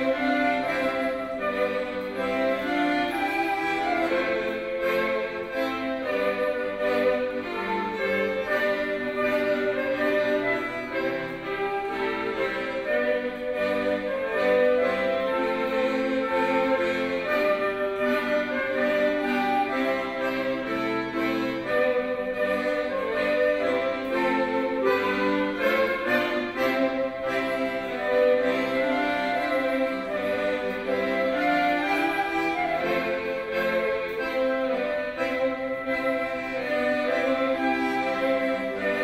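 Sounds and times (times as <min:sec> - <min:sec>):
flute: 0:00.0 - 0:39.0
piano accordion: 0:00.0 - 0:39.0
violin: 0:00.0 - 0:39.0.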